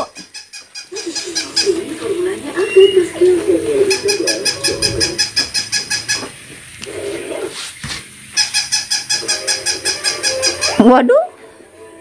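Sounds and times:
toy squeaking rapidly: 0:00.0 - 0:01.8, 0:03.8 - 0:06.4, 0:08.3 - 0:11.1.

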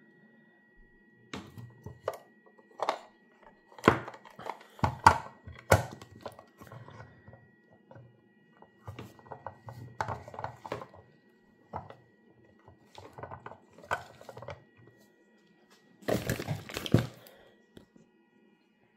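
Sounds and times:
plastic appliance clicks and knocks: 0:03.8 - 0:06.8.

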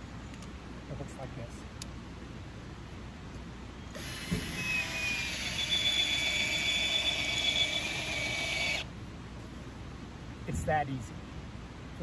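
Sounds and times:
power driver whining: 0:03.9 - 0:08.9.

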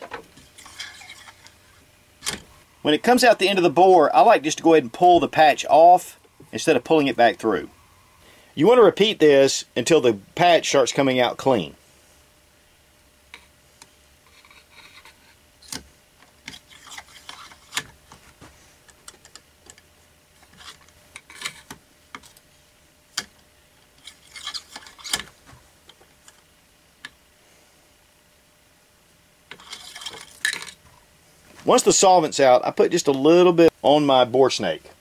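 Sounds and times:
cleaning rod scraping in barrel: 0:00.6 - 0:01.8.

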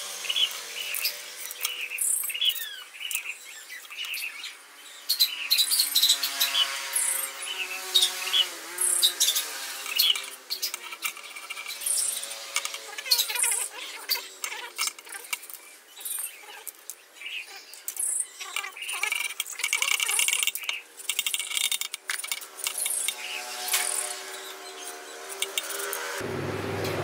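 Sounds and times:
hand saw cutting bamboo: 0:05.5 - 0:15.3, 0:19.0 - 0:26.2.

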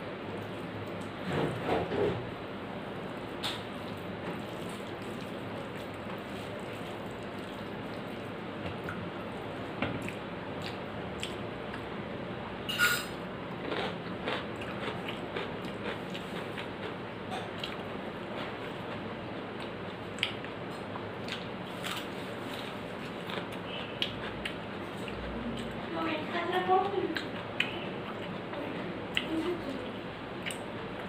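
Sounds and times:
chewing: 0:10.0 - 0:11.9, 0:13.5 - 0:19.0, 0:19.6 - 0:25.9, 0:27.1 - 0:28.4, 0:30.4 - 0:31.0.

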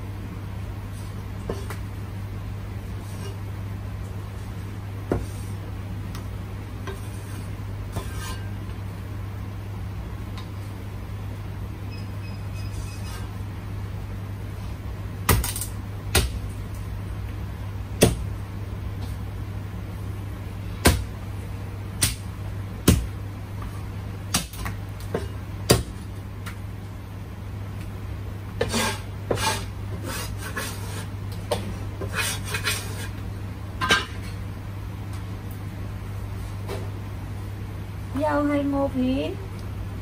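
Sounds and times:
cleaver chopping on wooden block: 0:20.9 - 0:21.1, 0:22.9 - 0:23.1, 0:24.3 - 0:26.0.

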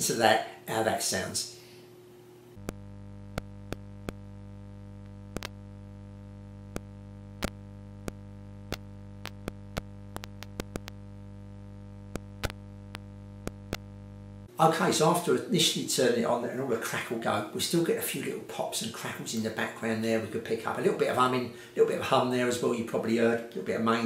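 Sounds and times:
mains hum: 0:00.0 - 0:24.0
pops and crackles: 0:02.6 - 0:04.4, 0:05.0 - 0:11.2, 0:12.0 - 0:14.1.

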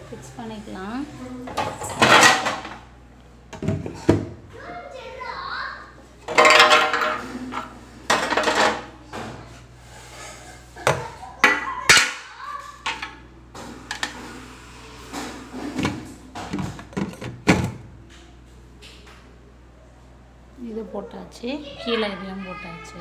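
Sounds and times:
plastic fridge parts clattering: 0:01.5 - 0:02.8, 0:06.2 - 0:09.5, 0:15.2 - 0:17.8.

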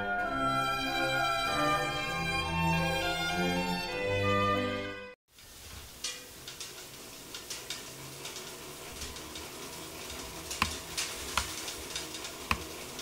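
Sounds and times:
film reel whirring: 0:05.3 - 0:13.0.

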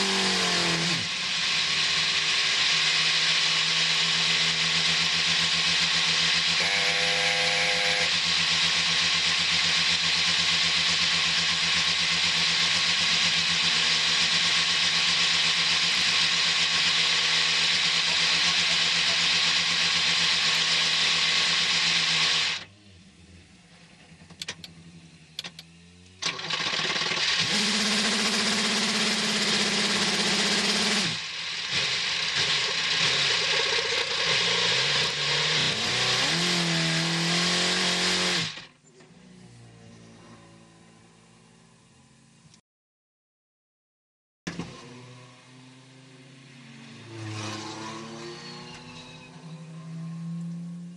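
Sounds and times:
clicks: 0:24.2 - 0:24.8, 0:25.4 - 0:26.4
engine starter cranking: 0:26.2 - 0:36.4.

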